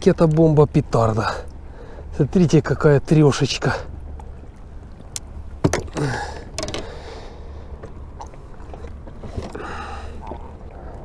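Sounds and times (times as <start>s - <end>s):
clicks and knocks: 5.6s - 6.9s.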